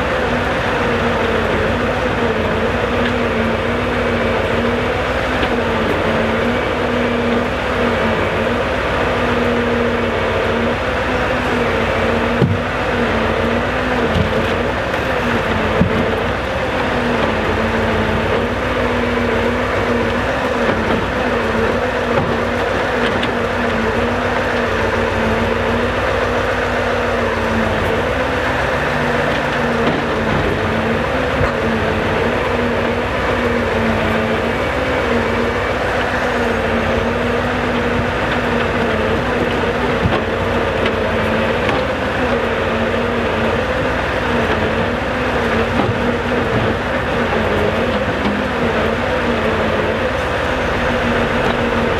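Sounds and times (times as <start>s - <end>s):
diesel engine running at raised revs: 0.0s - 51.9s
faint knocks of logs: 12.3s - 12.7s.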